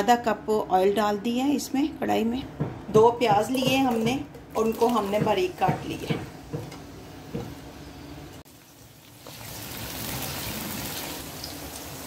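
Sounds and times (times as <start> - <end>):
onions sizzling in oil: 8.5 - 12.0.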